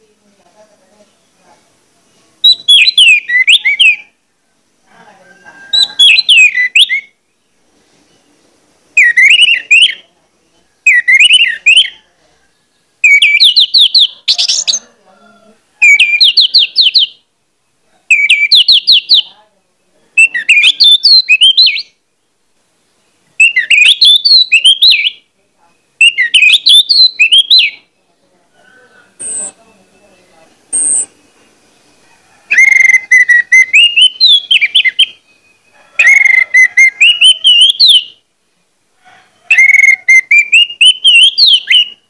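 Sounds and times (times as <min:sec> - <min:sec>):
thrush singing whistled notes: 0:02.4 - 0:04.2, 0:05.7 - 0:07.3, 0:09.0 - 0:10.1, 0:10.8 - 0:12.0, 0:13.0 - 0:14.8, 0:15.8 - 0:17.2, 0:18.1 - 0:19.3, 0:20.2 - 0:22.0, 0:23.4 - 0:25.2, 0:25.8 - 0:28.0, 0:29.1 - 0:38.2, 0:39.5 - 0:42.0.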